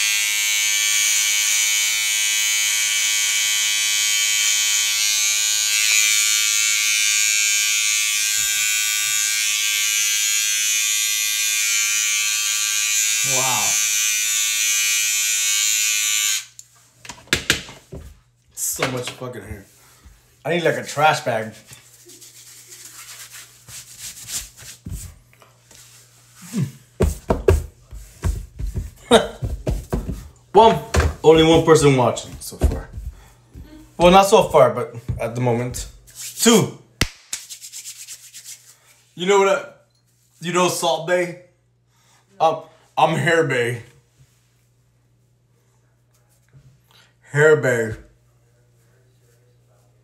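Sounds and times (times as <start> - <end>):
electric hair clippers buzzing: 0.0 - 16.6
hands rubbing over skin and hair: 19.6 - 30.0, 36.1 - 36.4, 37.2 - 39.1
heavier thumps: 27.0 - 33.8.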